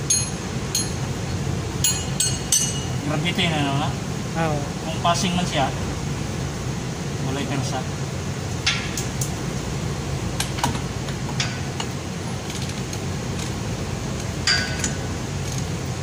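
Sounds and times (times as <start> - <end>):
low machinery hum: 0.0 - 16.0
wrench clinking on metal bolts: 0.1 - 1.0.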